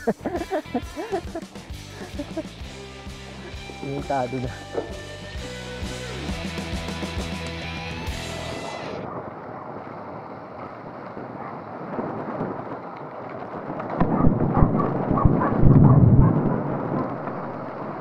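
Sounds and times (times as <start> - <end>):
wind rumble on microphone: 8.6 - 18.0
bike frame rattling: 9.8 - 14.0.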